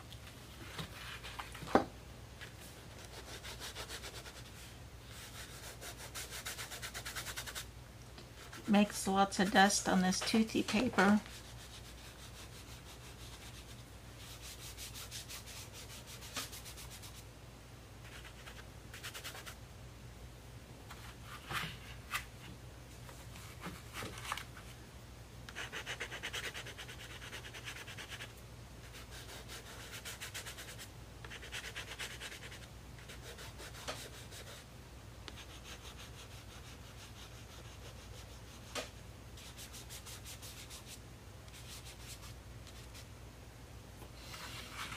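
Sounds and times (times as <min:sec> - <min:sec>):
pastel scratching on paper: 0:03.0 - 0:07.6, 0:11.2 - 0:17.2, 0:25.5 - 0:28.3, 0:28.9 - 0:34.6, 0:35.4 - 0:43.1.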